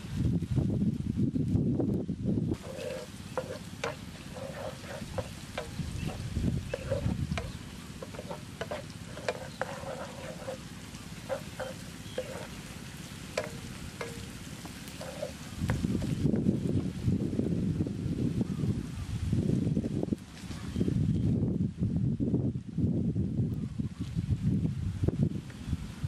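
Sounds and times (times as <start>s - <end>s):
food sizzling in oil: 2.5s - 16.2s
spatula scraping frying pan: 2.6s - 16.2s.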